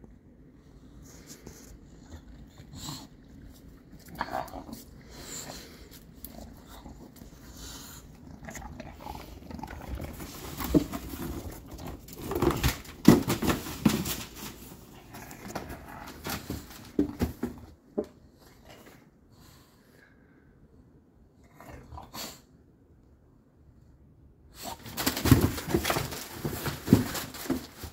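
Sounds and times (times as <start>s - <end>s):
puppy growling: 2.0s - 12.6s
cardboard scraping: 9.6s - 17.6s, 24.7s - 27.9s
paper crackling: 24.8s - 27.9s.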